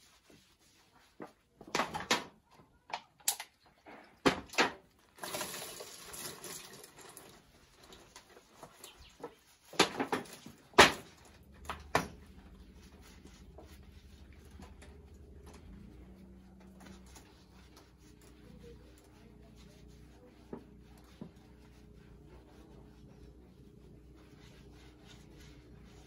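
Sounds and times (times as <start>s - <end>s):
sponge scrubbing skin: 0.0s - 1.6s, 5.5s - 26.0s
water splashing in a bucket: 5.2s - 7.5s.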